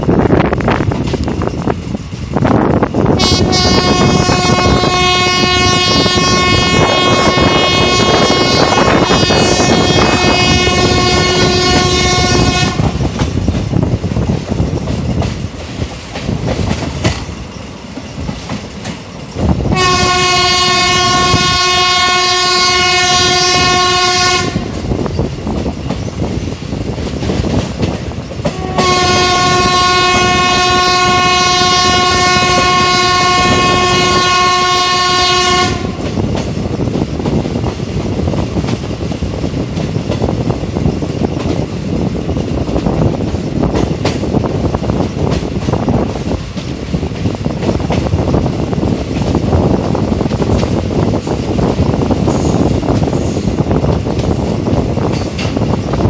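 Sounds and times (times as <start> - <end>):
train wheels clattering on rails: 0.0 - 56.0
locomotive horn blasts: 3.2 - 12.9, 19.7 - 24.8, 28.5 - 36.1.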